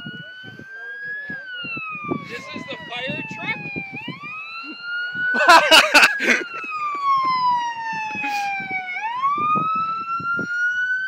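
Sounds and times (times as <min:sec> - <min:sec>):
emergency siren wailing: 0:00.0 - 0:11.0.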